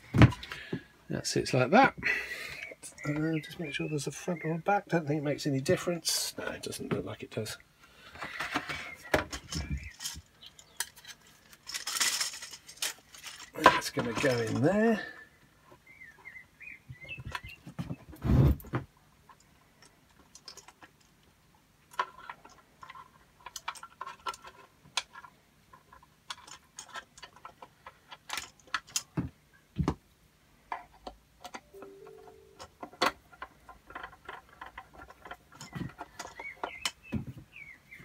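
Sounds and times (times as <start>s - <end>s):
plastic parts clicking and knocking: 0.0s - 0.9s, 8.1s - 15.0s, 19.2s - 31.8s, 32.5s - 38.0s.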